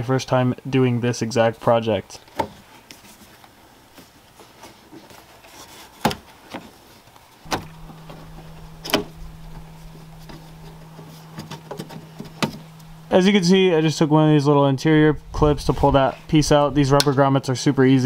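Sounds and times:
steady low hum: 7.4 - 17.2.

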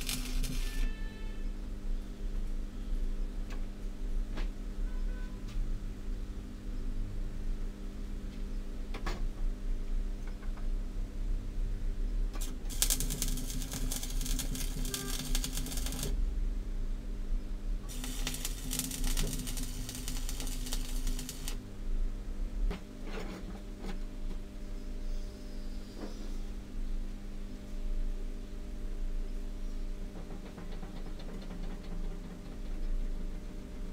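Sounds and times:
arc welding crackle: 0.0 - 1.0, 12.4 - 16.2, 17.9 - 21.6
low electrical hum: 0.0 - 33.9.

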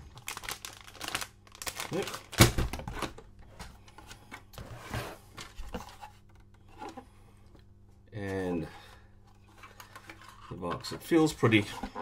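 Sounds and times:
plastic pouch rustling: 0.0 - 2.9.

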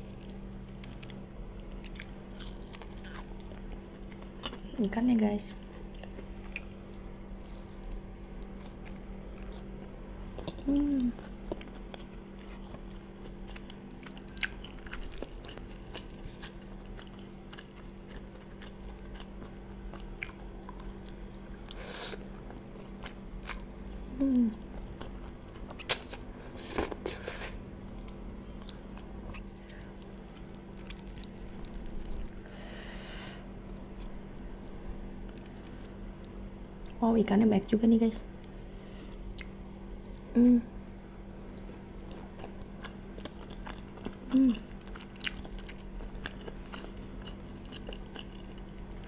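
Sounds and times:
close chewing with wet mouth clicks: 0.1 - 4.8, 10.3 - 21.8, 28.0 - 32.2, 41.7 - 49.0.

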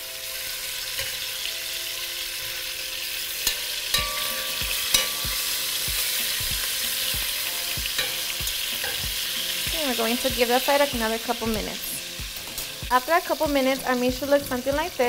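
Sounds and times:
meat sizzling in a pot: 0.0 - 15.0
metal tongs clicking: 3.4 - 5.5, 8.0 - 9.0.

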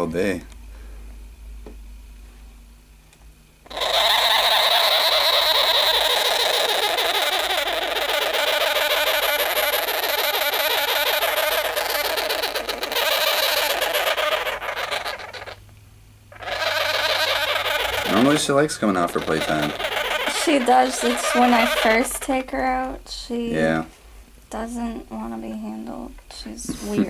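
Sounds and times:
sugar glider crackling buzz: 3.6 - 23.9.

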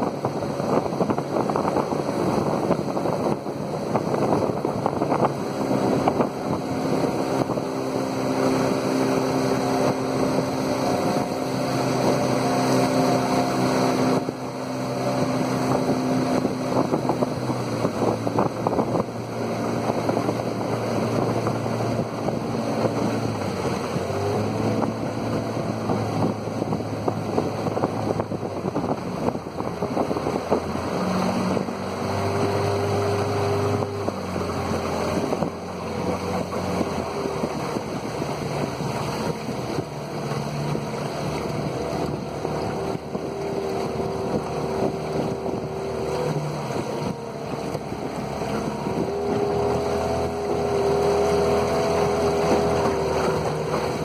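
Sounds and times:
outboard motor running: 0.0 - 54.0
rushing water: 0.0 - 54.0
wind on microphone: 0.0 - 54.0.

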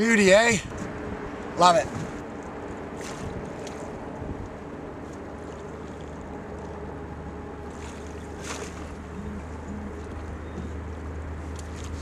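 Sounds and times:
outboard motor idling: 0.0 - 12.0
net splashing into water: 3.0 - 3.8, 7.7 - 9.0.

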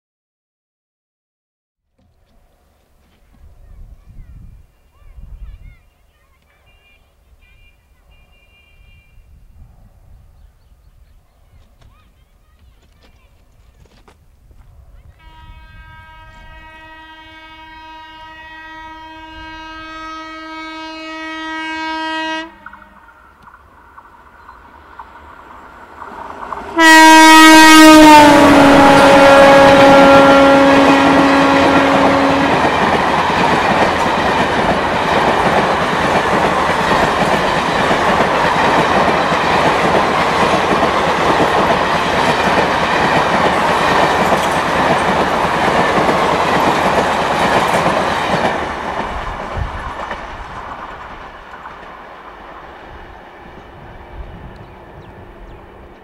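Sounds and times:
locomotive horn blast: 6.8 - 9.4, 15.2 - 23.1, 26.7 - 33.1
train coaches clattering on rails: 28.9 - 52.2.

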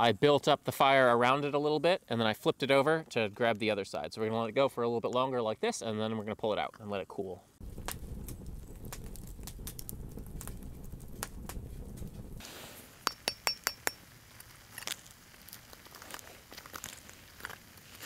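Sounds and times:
low rumble: 7.6 - 12.4.

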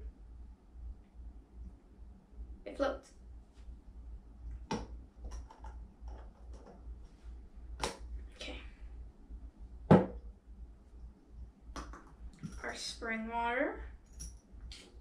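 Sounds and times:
dull knock: 9.9 - 10.2.

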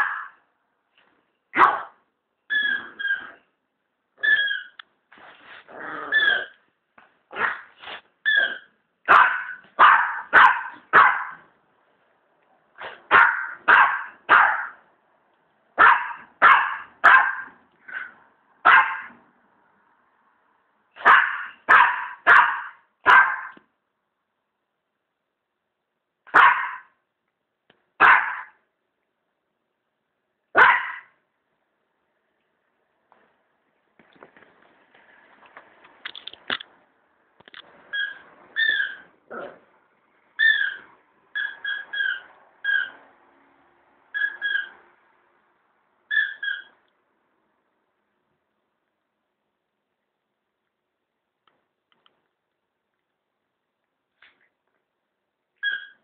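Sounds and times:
small dog barking: 0.0 - 0.4, 1.5 - 3.4, 7.3 - 7.7, 8.3 - 11.5, 12.9 - 14.8, 15.8 - 19.2, 21.0 - 23.6, 26.3 - 27.0, 28.0 - 28.6, 30.5 - 31.2
high-pitched toy squeaks: 2.5 - 3.4, 4.2 - 4.8, 8.2 - 8.7
dog scuffling on carpet: 5.1 - 5.7.

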